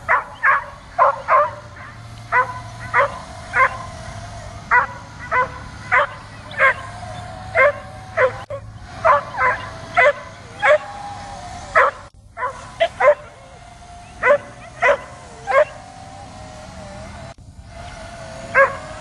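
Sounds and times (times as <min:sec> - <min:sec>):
drone propellers whining: 0:00.0 - 0:19.0
dog barking: 0:00.1 - 0:03.9, 0:04.7 - 0:10.9, 0:11.8 - 0:13.4, 0:14.2 - 0:15.8, 0:18.5 - 0:18.9.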